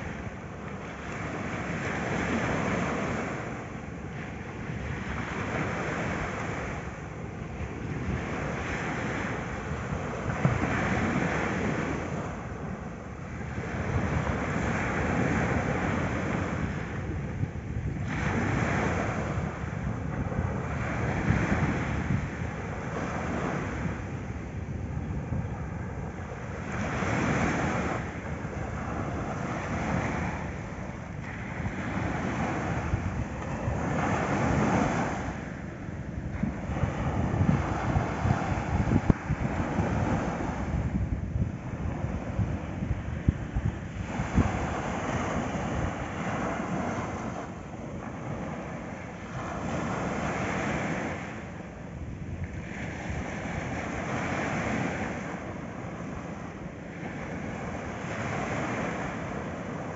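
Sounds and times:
small waves breaking on beach: 0:00.0 - 0:59.9
wind on microphone: 0:00.0 - 0:59.9.

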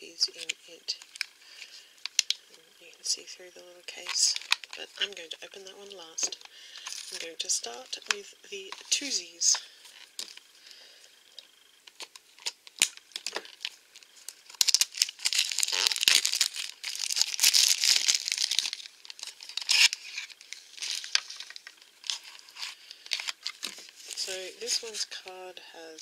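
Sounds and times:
plastic film crinkling and tearing: 0:00.4 - 0:02.4, 0:03.9 - 0:05.2, 0:06.2 - 0:08.1, 0:11.9 - 0:25.0.

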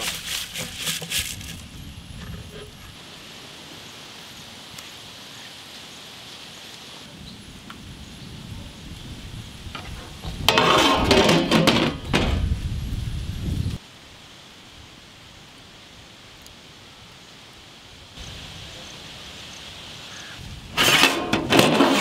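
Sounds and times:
metal lid scraping clatter: 0:09.8 - 0:12.3, 0:20.8 - 0:22.0.

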